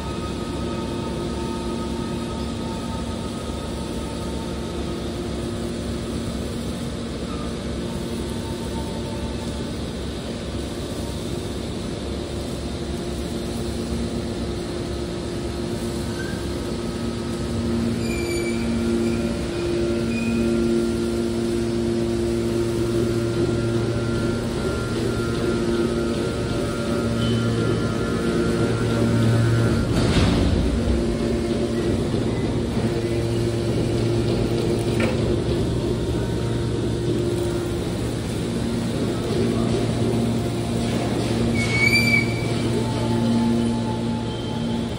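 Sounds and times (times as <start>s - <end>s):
hydraulic baler motor hum: 15.0s - 44.9s.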